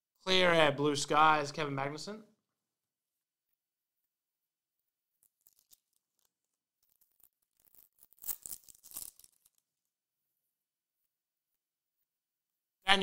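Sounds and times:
foil wrapper tearing: 5.2s - 9.7s
cards rustling and clicking: 5.2s - 9.8s.

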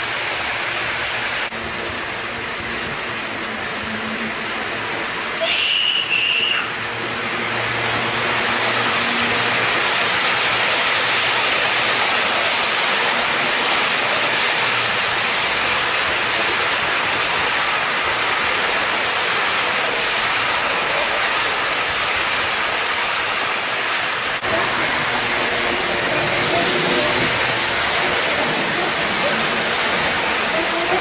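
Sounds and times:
model train wheels rattling: 7.8s - 31.0s.

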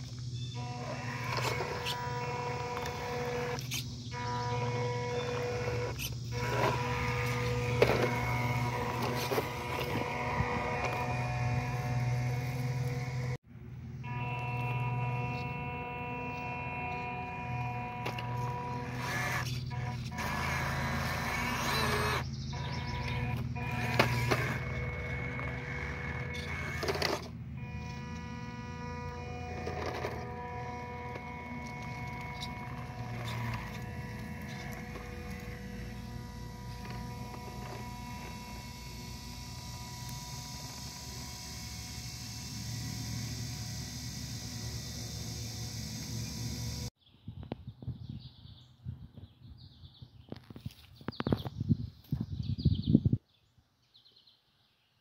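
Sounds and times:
small electric motor whine: 0.0s - 47.0s.

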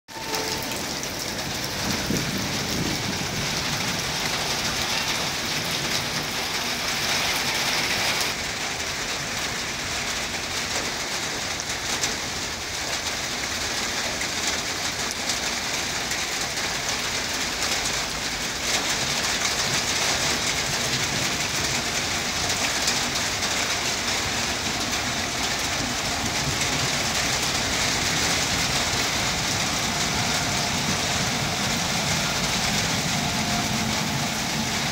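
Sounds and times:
heavy rain splashing on ground: 0.1s - 34.9s.

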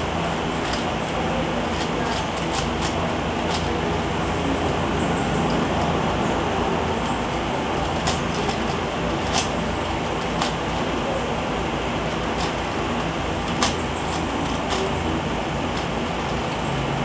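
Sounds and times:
plastic puzzle cube turning: 1.6s - 3.7s.

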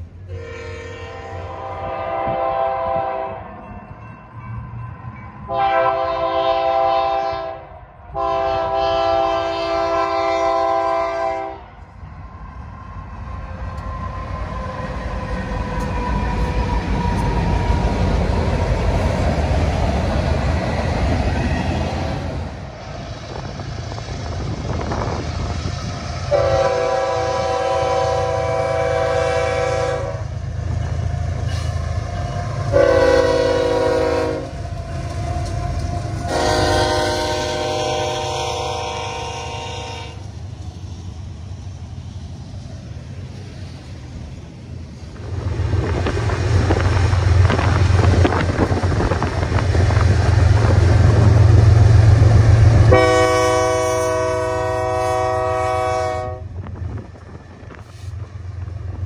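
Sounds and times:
locomotive air horn: 0.3s - 3.5s, 5.5s - 11.7s, 26.3s - 30.3s, 32.7s - 34.6s, 35.3s - 40.2s, 52.8s - 56.5s
freight cars rumbling past: 10.5s - 39.2s, 40.2s - 55.6s.

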